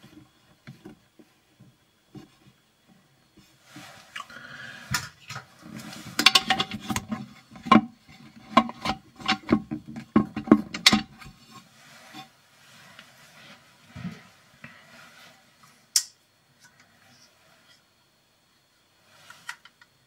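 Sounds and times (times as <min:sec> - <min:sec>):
objects clinking and knocking: 0:06.0 - 0:07.9.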